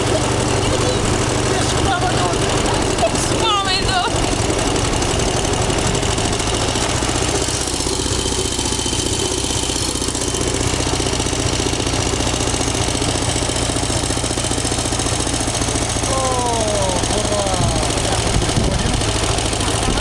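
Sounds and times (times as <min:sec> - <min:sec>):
rickshaw engine running: 0:00.0 - 0:20.0
wind buffeting microphone: 0:17.6 - 0:19.2.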